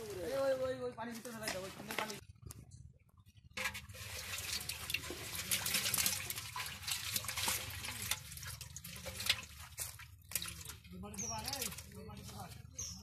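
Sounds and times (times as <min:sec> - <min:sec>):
fish splashing in muddy water: 0:03.6 - 0:13.0.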